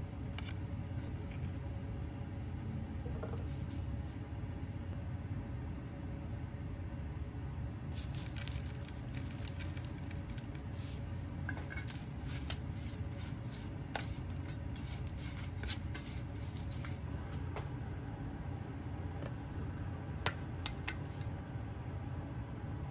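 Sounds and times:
steady low hum: 0.0 - 22.9
spinach mixed by hand in pot: 7.9 - 11.0, 11.6 - 17.1.

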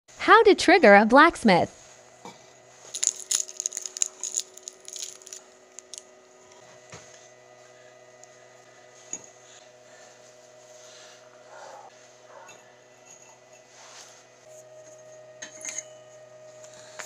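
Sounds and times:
faint steady hum: 0.1 - 17.0
foil wrapper crinkling: 2.9 - 6.1
wire pieces clicking into crucible: 2.9 - 6.1.

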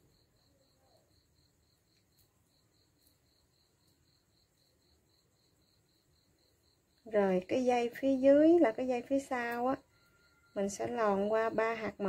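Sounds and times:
cricket chirping: 0.0 - 12.0
faint ticks: 1.8 - 4.2.

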